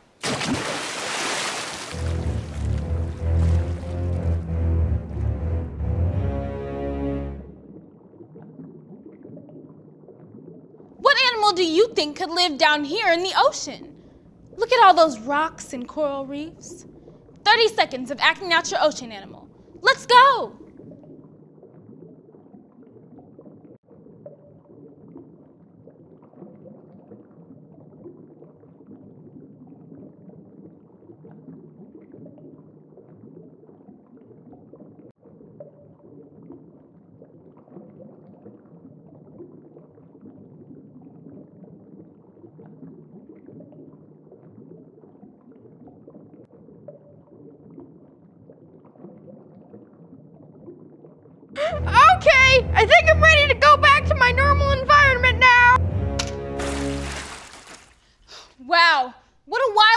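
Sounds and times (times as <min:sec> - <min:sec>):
underwater water wash: 0:00.2 - 0:06.8, 0:56.2 - 0:58.3.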